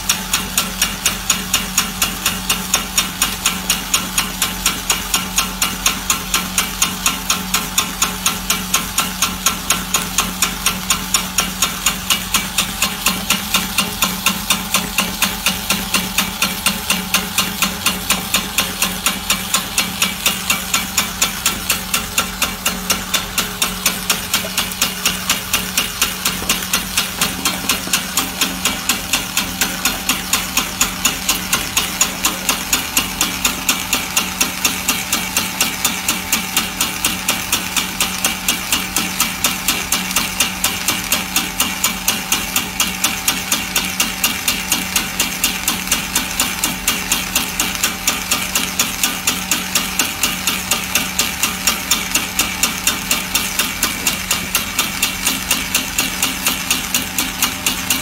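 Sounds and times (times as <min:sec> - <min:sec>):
rapid regular knocking: 0:00.0 - 0:40.6
motor hum: 0:00.0 - 0:58.0.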